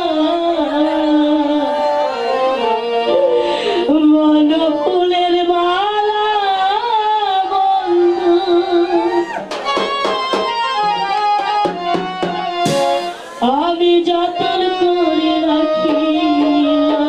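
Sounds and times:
instrumental melody: 0:00.2 - 0:05.8, 0:09.5 - 0:17.0
tabla strokes: 0:09.5 - 0:13.8.

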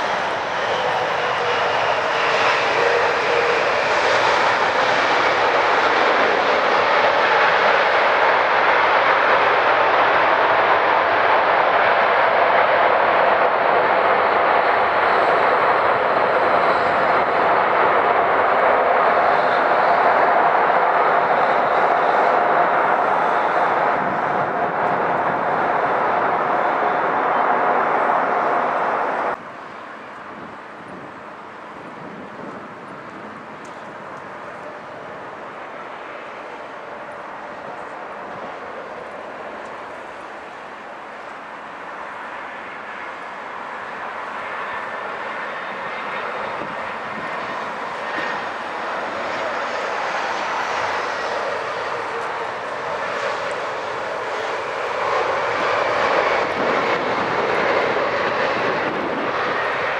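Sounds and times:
jet engines roaring: 0:00.0 - 0:59.9.

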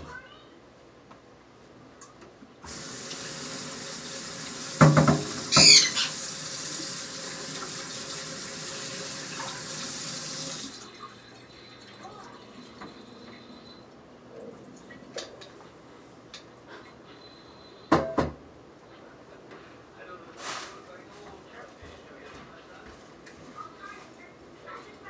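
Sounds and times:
tap water splashing into sink: 0:02.7 - 0:11.0, 0:11.9 - 0:13.4.

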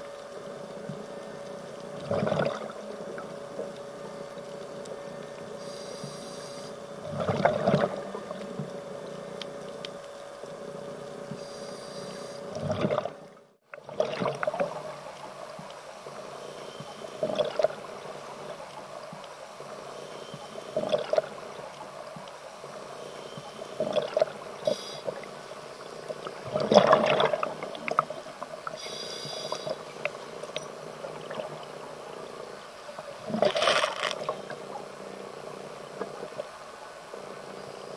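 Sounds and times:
underwater background: 0:00.0 - 0:37.9
exhaled bubbles gushing: 0:02.0 - 0:02.8, 0:07.1 - 0:08.0, 0:12.6 - 0:13.2, 0:13.8 - 0:15.0, 0:17.2 - 0:18.6, 0:20.8 - 0:21.6, 0:23.8 - 0:24.4, 0:26.3 - 0:28.0
hissing regulator inhalations: 0:05.6 - 0:06.8, 0:11.3 - 0:12.5, 0:24.7 - 0:25.2, 0:28.8 - 0:29.9.

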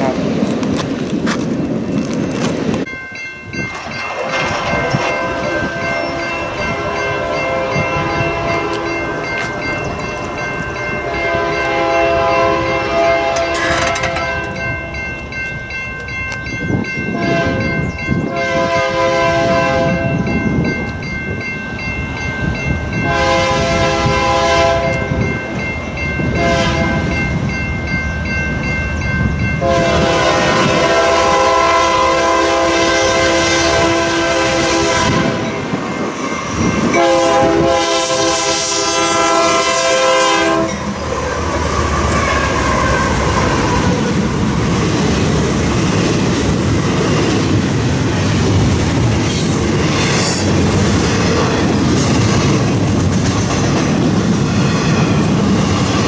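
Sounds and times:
train rumbling: 0:00.0 - 0:56.0
crossing signal bell ringing: 0:02.8 - 0:41.2
locomotive air horn blasts: 0:04.3 - 0:09.3, 0:11.0 - 0:14.6, 0:17.1 - 0:17.7, 0:18.3 - 0:20.1, 0:23.0 - 0:25.2, 0:26.3 - 0:27.1, 0:29.6 - 0:35.5, 0:36.9 - 0:40.9.

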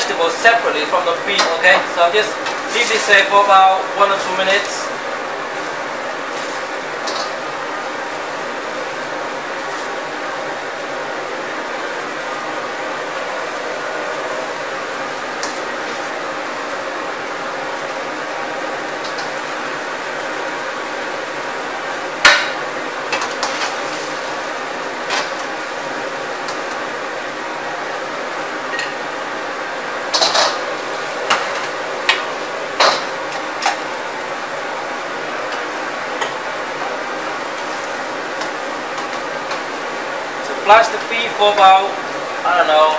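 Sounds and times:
gas burner roaring: 0:00.0 - 0:42.9
water boiling hard: 0:00.0 - 0:42.9
utensils clanking on metal wok: 0:30.1 - 0:30.6.

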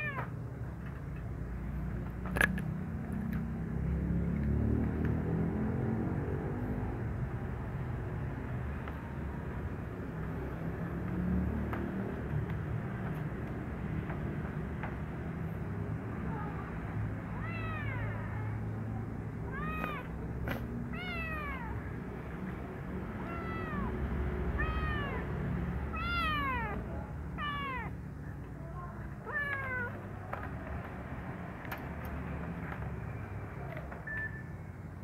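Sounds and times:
kitten meowing: 0:00.0 - 0:00.4, 0:17.3 - 0:18.7, 0:19.4 - 0:21.9, 0:23.2 - 0:28.0, 0:29.2 - 0:30.0.

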